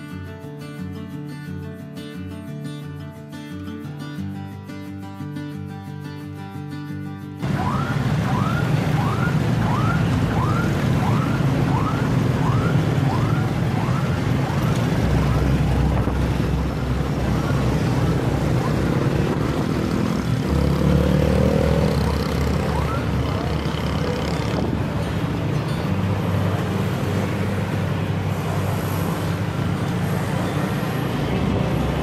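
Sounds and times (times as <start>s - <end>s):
electronic siren yelping: 7.4s - 15.6s, 21.9s - 23.6s
street traffic drone: 7.4s - 32.0s.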